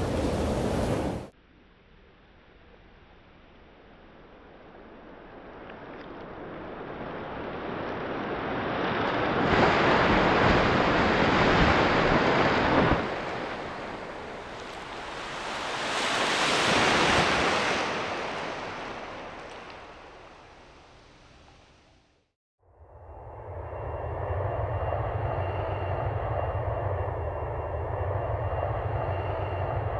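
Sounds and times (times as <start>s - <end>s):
surging surf-like water: 0.0s - 1.3s, 5.6s - 21.8s.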